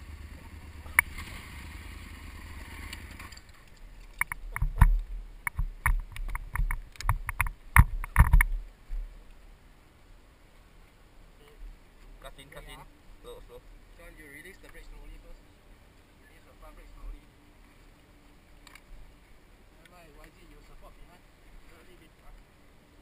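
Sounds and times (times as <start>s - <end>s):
steady low engine rumble: 0.0s - 5.8s.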